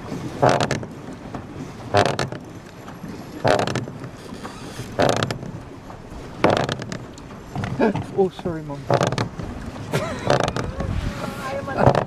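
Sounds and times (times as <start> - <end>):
pedal drive creaking: 0.3 - 12.0.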